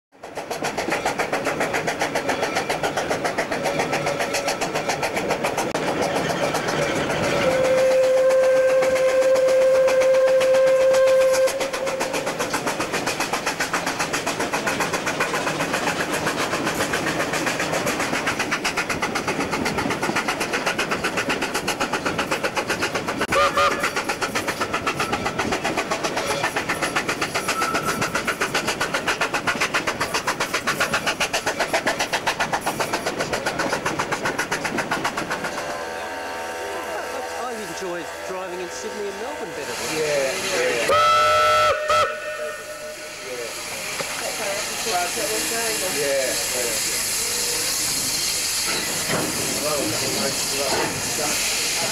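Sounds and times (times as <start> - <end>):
steam locomotive exhaust beat: 0.1 - 51.9
steam whistle: 7.3 - 12.3, 23.3 - 24.0, 40.9 - 43.8.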